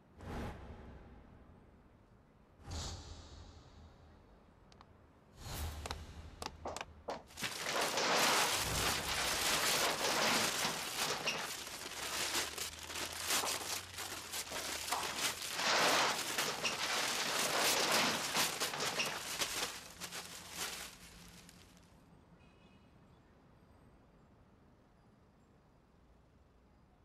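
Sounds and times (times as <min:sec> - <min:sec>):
paper tearing and crinkling: 0:07.3 - 0:21.8.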